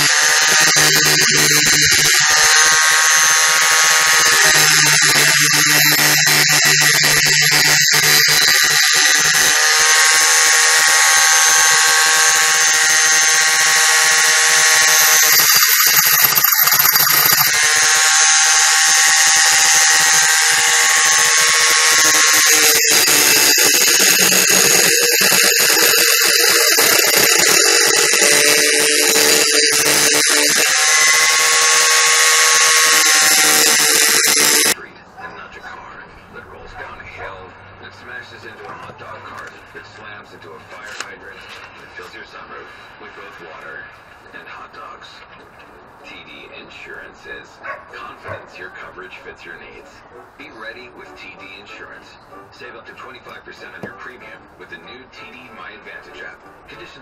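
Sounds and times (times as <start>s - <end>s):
angle grinder grinding metal: 0.0s - 34.8s.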